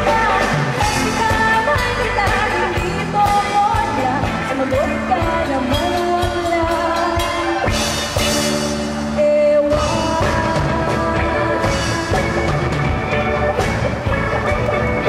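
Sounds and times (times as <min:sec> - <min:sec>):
woman singing into microphone: 0:00.0 - 0:07.7, 0:09.1 - 0:12.7
bass guitar: 0:00.0 - 0:15.0
drums: 0:00.0 - 0:15.0
electric guitar: 0:00.0 - 0:15.0.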